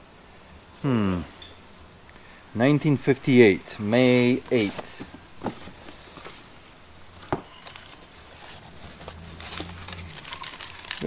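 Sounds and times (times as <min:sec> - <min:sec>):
packing paper rustling: 0:04.0 - 0:11.0.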